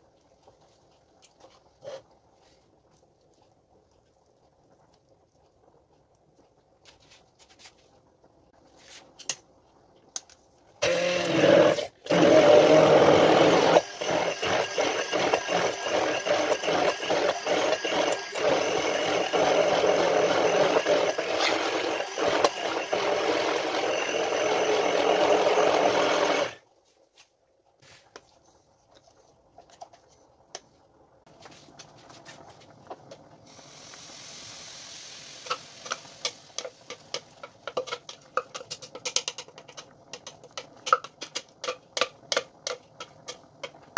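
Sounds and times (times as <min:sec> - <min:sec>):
immersion blender running: 0:10.8 - 0:26.6.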